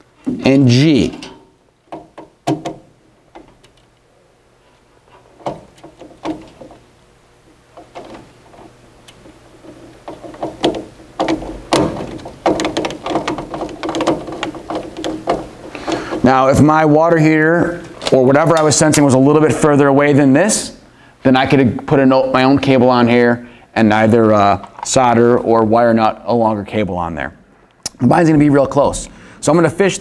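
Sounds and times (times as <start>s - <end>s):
hand handling noise: 0.0s - 16.7s.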